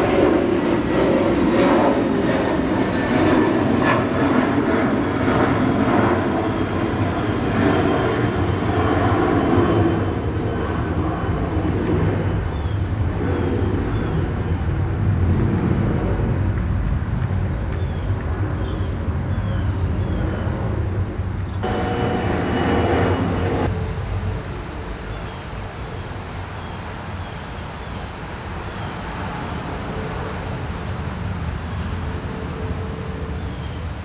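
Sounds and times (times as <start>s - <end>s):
distant traffic rumble: 0.0s - 34.0s
hum with steady tones: 20.7s - 26.5s
thin high whine: 21.6s - 26.1s, 29.9s - 34.0s.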